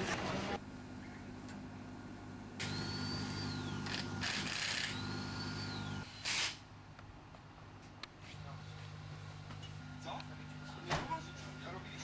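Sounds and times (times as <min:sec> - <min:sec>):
low mechanical hum: 0:00.0 - 0:12.0
hissing air bursts: 0:06.1 - 0:06.6.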